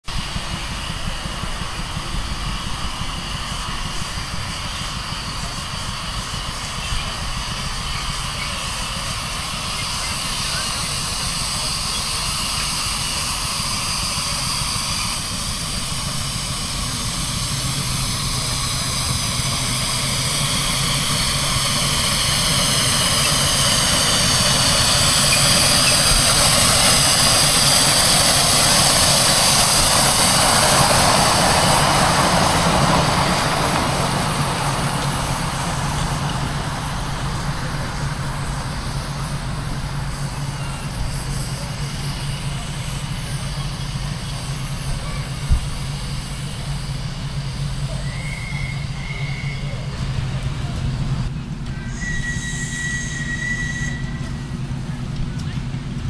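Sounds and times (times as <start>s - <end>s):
steam locomotive hissing: 0.0s - 56.0s.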